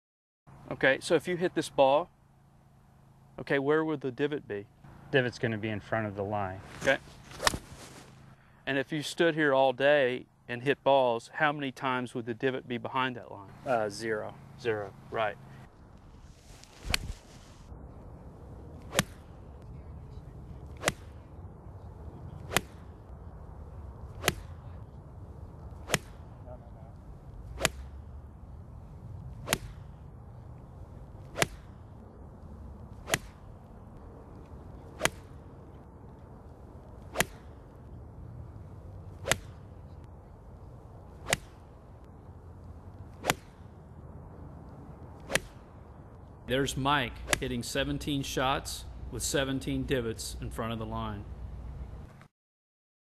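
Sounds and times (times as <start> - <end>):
golf iron striking ball: 7.2 - 7.8, 20.7 - 21.1, 22.4 - 22.8, 24.1 - 24.6, 25.8 - 26.3, 27.4 - 28.2, 29.4 - 30.0, 30.6 - 31.8, 32.9 - 33.6, 34.8 - 35.6, 37.0 - 37.6, 39.2 - 39.7, 41.1 - 41.7.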